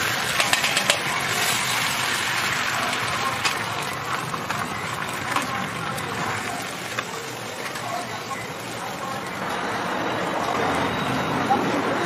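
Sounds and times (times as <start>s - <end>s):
egg sizzling on a griddle: 0.0s - 9.0s.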